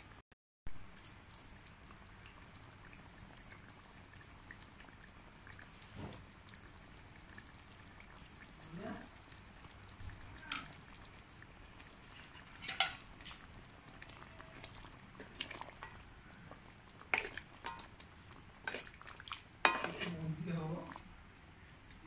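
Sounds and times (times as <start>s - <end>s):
metal ladle scraping a pan: 12.0s - 13.5s, 17.0s - 17.9s, 18.6s - 20.5s.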